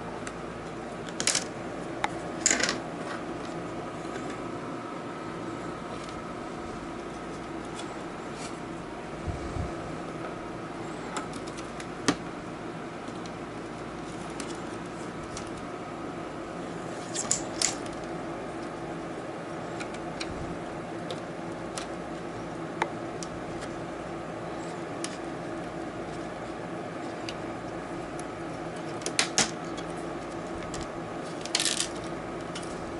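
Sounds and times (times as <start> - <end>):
steady low hum: 0.0 - 32.9.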